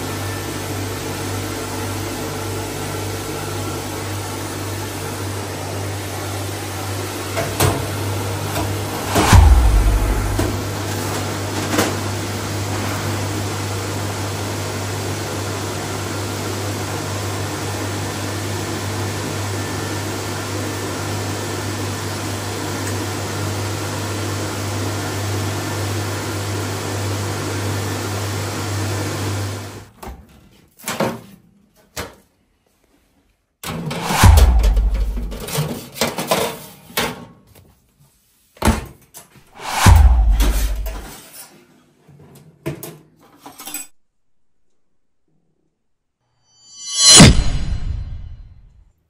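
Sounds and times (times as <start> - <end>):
electric blower rushing air: 8.9 - 10.8, 34.0 - 35.4, 39.6 - 41.1.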